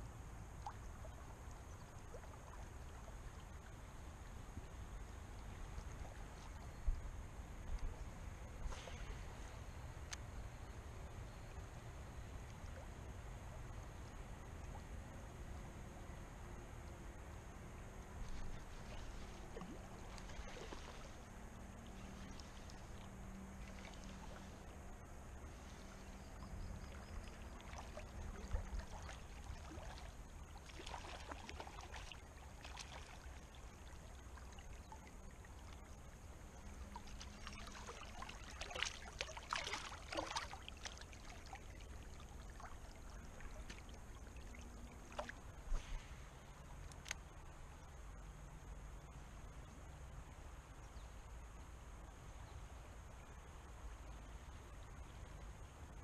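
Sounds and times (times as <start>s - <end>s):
shallow river water trickling: 0.0s - 56.0s
small splashes: 18.2s - 24.8s, 25.4s - 46.3s.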